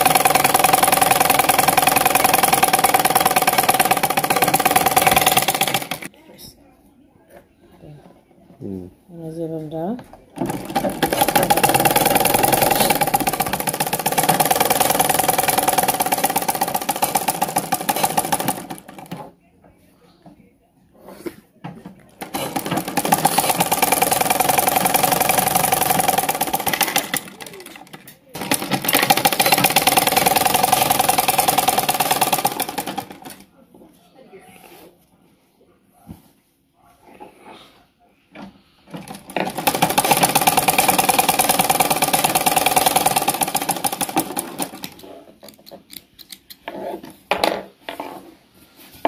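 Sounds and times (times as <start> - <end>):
sewing machine stitching: 0.0 - 6.1, 10.4 - 19.3, 22.1 - 33.4, 38.9 - 45.1.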